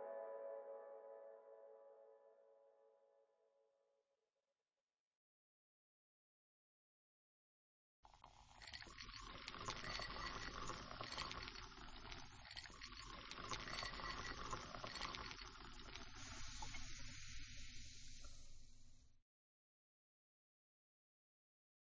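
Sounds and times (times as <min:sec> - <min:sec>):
steady crackling hiss: 0:08.3 - 0:19.2.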